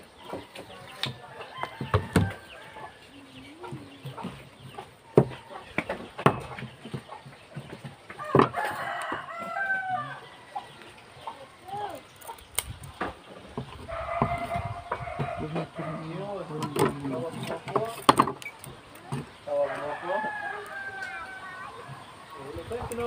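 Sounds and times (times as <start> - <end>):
chickens calling: 0.0 - 23.0
rooster crowing: 1.2 - 3.1, 8.2 - 10.9, 13.9 - 16.2, 19.5 - 21.8.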